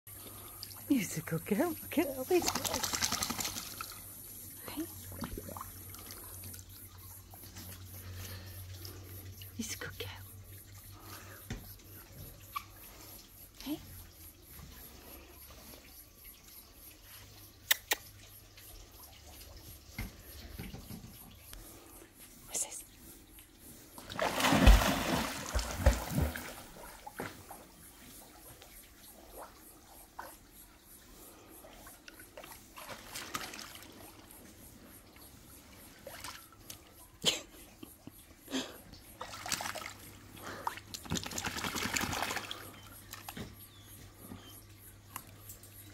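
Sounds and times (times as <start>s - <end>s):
dog splashing into pool: 2.0s - 4.0s, 24.0s - 27.6s, 32.8s - 34.1s, 39.2s - 43.3s
water trickling and dripping: 3.3s - 37.2s, 42.0s - 45.9s
small water splashes: 24.0s - 27.6s, 32.4s - 34.3s, 39.2s - 43.4s.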